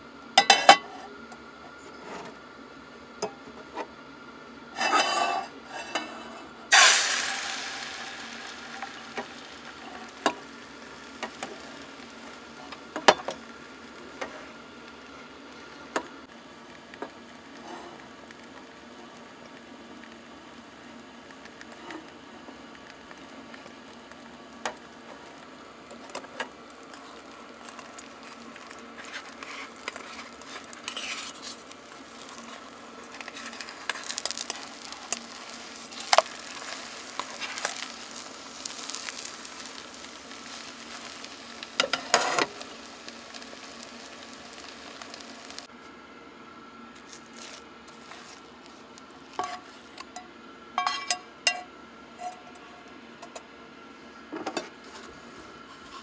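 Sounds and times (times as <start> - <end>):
food sizzling in a pan: 4.7 - 45.7, 47.0 - 50.0
utensil scraping and clinking pan: 4.8 - 11.6, 29.0 - 31.6, 50.8 - 51.6.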